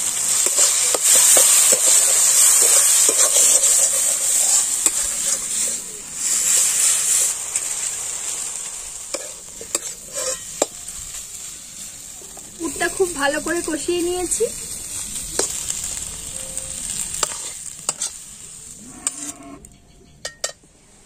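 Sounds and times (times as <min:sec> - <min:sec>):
stuffing sizzling in oil: 0:00.0 - 0:19.6
metal spatula scraping pan: 0:09.1 - 0:11.2, 0:16.3 - 0:18.2.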